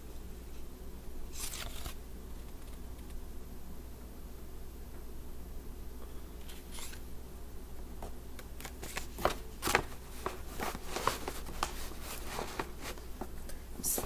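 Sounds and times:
crinkly rustling and crackling: 8.6s - 14.0s.

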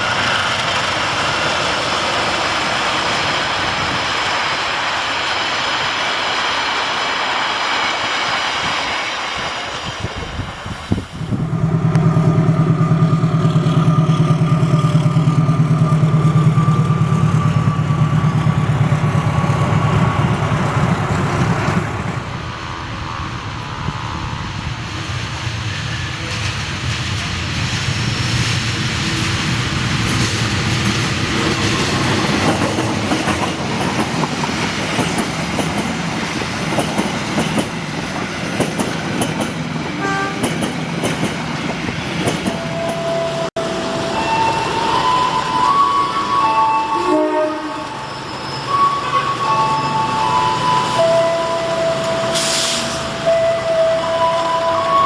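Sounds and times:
train wheels rolling on rail: 0.0s - 47.0s
locomotive engine drone: 11.2s - 33.8s.

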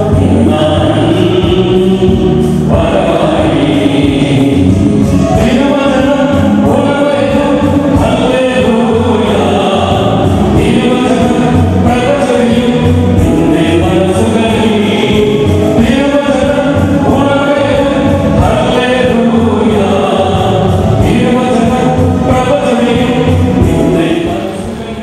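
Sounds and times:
church choir singing a hymn: 0.0s - 25.0s
low accompaniment: 0.0s - 25.0s.

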